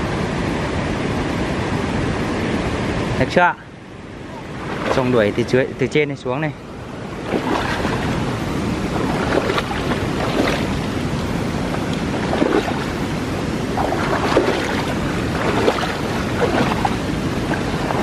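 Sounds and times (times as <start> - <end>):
person wading through stream water: 4.3 - 5.6, 7.0 - 18.0.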